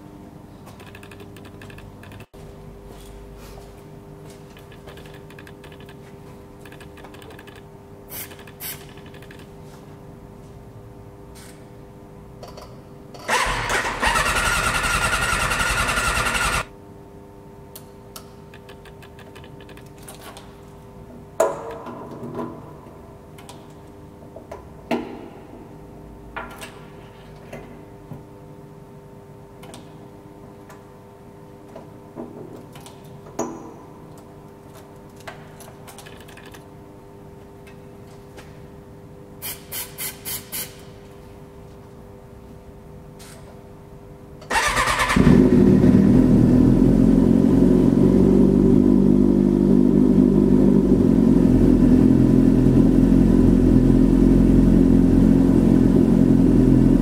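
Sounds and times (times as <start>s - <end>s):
sharp clicks and knocks: 0.7s - 2.4s, 4.5s - 7.7s
electric starter cranking engine: 13.3s - 16.7s, 44.5s - 45.5s.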